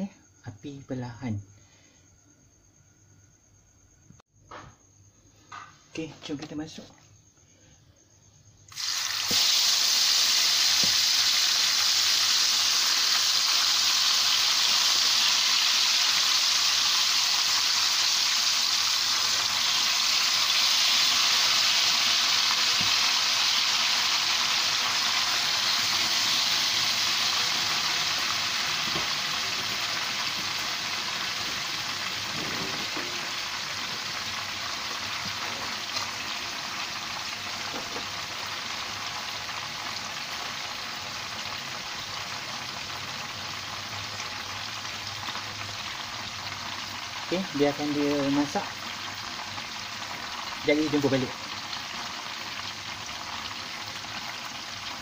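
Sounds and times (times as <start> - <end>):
chicken sizzling in hot oil: 8.6 - 55.0.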